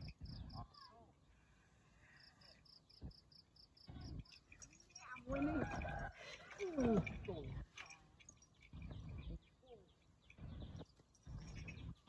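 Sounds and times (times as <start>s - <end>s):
cricket chirping: 2.4s - 12.0s.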